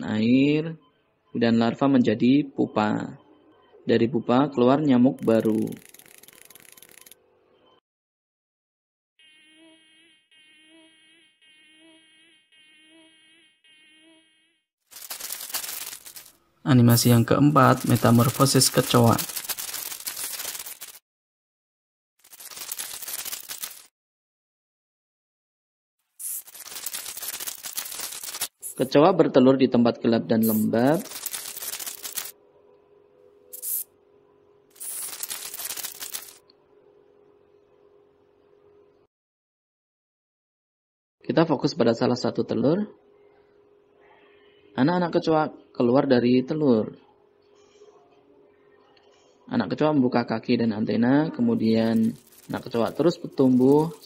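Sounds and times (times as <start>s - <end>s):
mosquito buzzing: 9.2s - 14.6s
dry crackling rustle: 26.2s - 28.8s, 51.6s - 54.0s.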